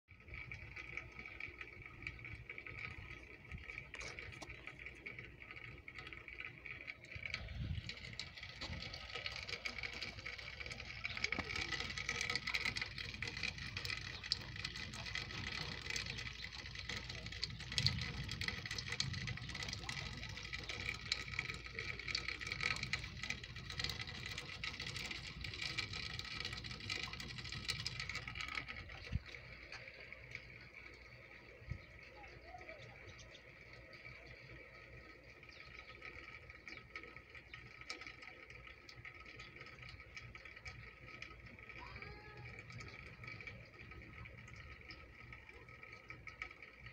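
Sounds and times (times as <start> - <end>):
rain pattering on grass and concrete: 0.8 - 35.0.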